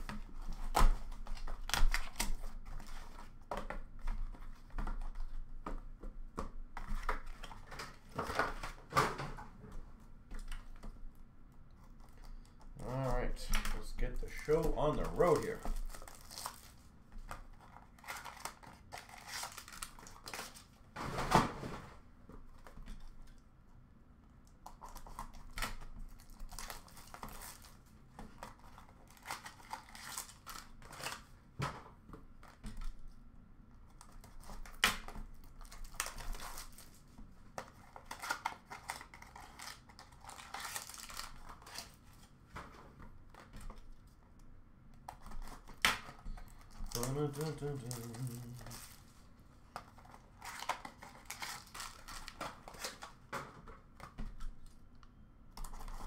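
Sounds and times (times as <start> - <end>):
wrapping crinkling and tearing: 0.0 - 3.4, 11.8 - 20.8, 24.6 - 31.3, 33.9 - 42.4, 45.0 - 53.3, 55.6 - 56.0.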